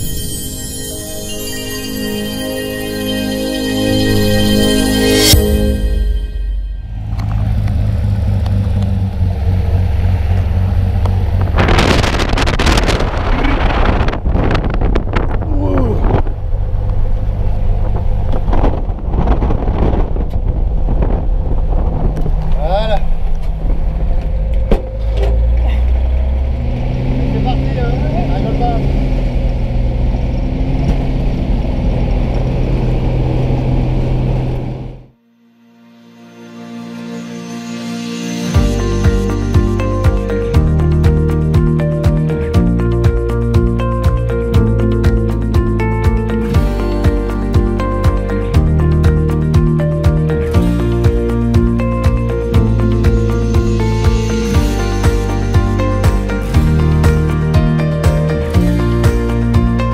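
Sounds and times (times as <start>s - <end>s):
loud rushing noise: 0.0s - 10.6s, 11.2s - 15.4s
propeller plane engine droning: 1.0s - 35.1s.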